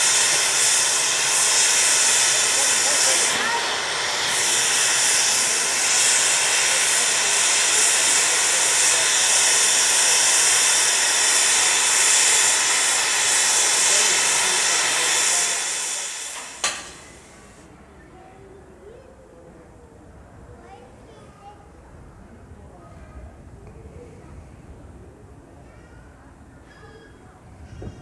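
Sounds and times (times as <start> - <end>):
steam hissing from locomotive: 0.0 - 17.7.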